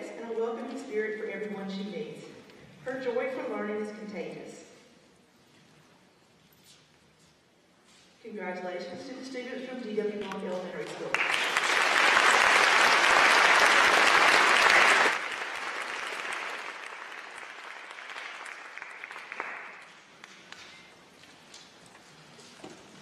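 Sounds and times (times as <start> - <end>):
audience applauding: 11.1 - 20.5.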